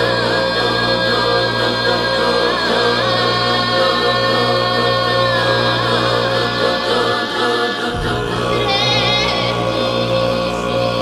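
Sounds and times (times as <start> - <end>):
throat singing: 0.0 - 11.0.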